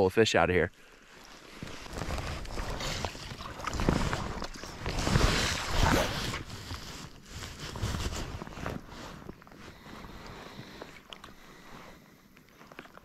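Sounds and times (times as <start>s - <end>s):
rain jacket rustling: 1.0s - 11.0s.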